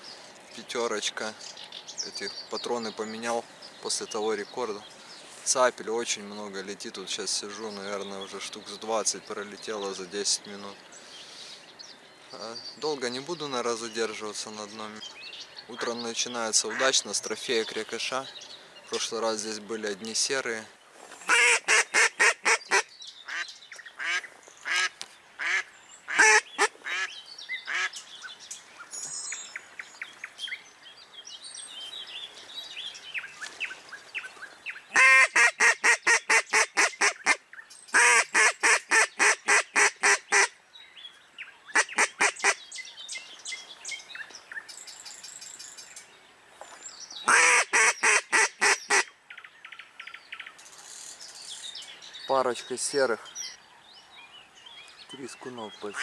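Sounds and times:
small birds chirping: 0.0s - 35.1s, 35.9s - 56.0s
duck quacking: 21.3s - 23.4s, 24.0s - 27.1s, 35.0s - 37.4s, 38.0s - 40.5s, 47.3s - 49.1s.

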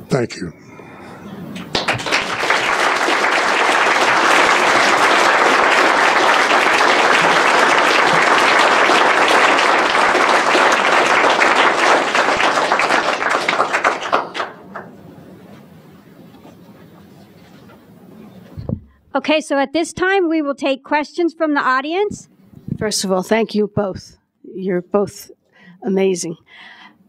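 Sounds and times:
audience applauding: 1.6s - 15.2s.

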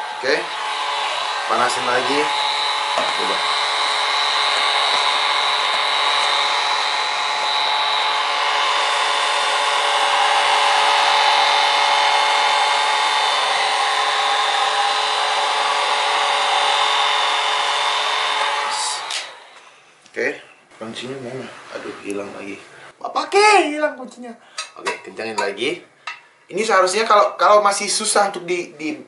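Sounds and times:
hair dryer running: 0.0s - 20.0s.

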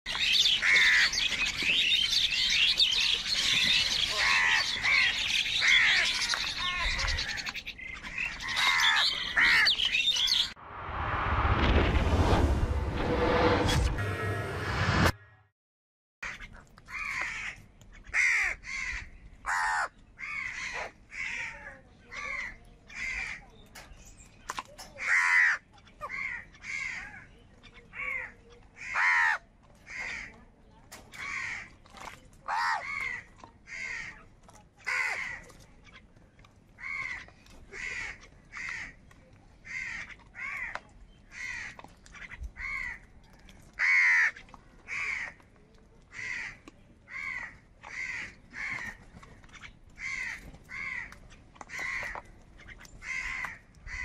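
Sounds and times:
crows cawing: 0.4s - 1.8s, 2.4s - 9.9s, 16.2s - 23.5s, 25.0s - 27.3s, 27.9s - 30.4s, 31.1s - 31.8s, 32.5s - 34.2s, 34.8s - 35.5s, 36.8s - 39.0s, 39.6s - 45.4s, 46.1s - 54.0s.

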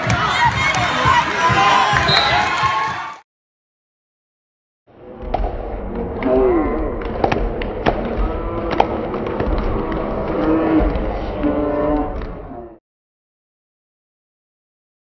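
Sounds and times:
crowd voices and shouts: 0.0s - 3.2s.

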